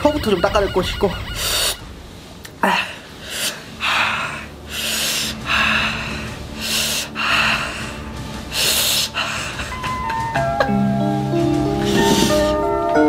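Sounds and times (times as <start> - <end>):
man hissing breaths through teeth: 11.8 - 12.7.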